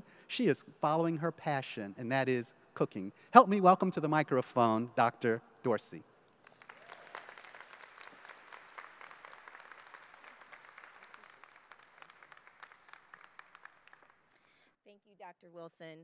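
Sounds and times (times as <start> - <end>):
audience applauding: 6.4 - 14.4.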